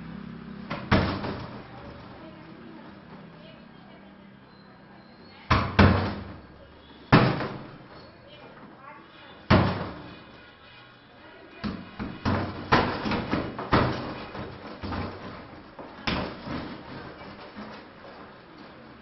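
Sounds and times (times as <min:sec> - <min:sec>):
punching bag thuds: 0:07.1 - 0:07.7.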